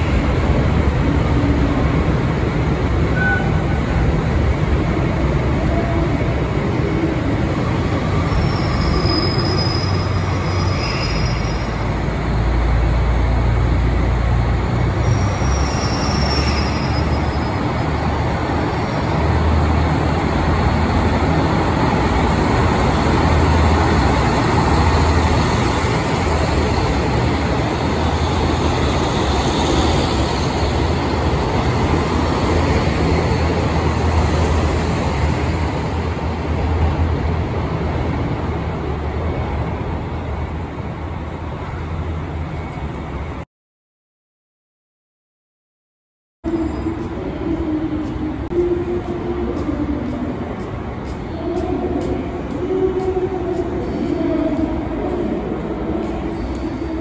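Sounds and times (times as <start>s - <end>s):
diesel train engines rumbling: 0.0s - 43.4s, 46.4s - 57.0s.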